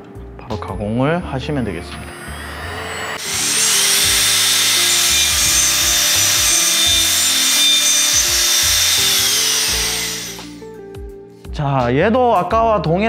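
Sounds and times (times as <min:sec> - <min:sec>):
electric router whining and hissing: 0:00.6 - 0:10.6.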